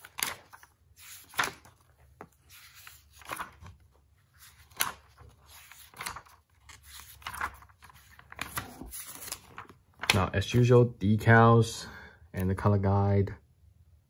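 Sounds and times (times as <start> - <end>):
paper pages flipping: 0.0 - 10.6.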